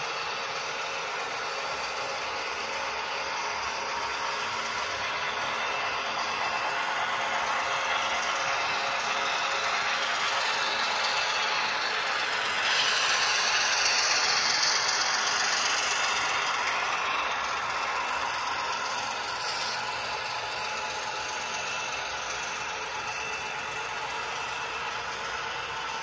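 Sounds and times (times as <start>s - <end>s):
model trains rattling on track: 0.0s - 26.0s.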